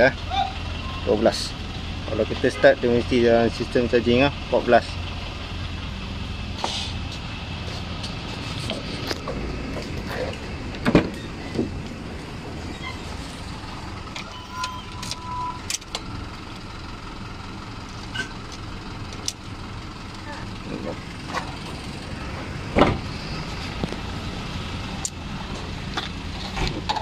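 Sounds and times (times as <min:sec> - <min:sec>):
car door knocks and clicks: 0:22.8 - 0:23.0.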